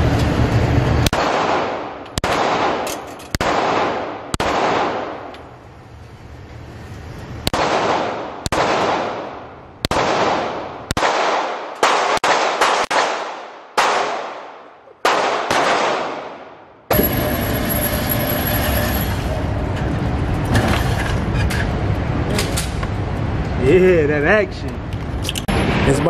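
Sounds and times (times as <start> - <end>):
pistol shots echoing: 1.0 - 5.3, 7.5 - 16.6.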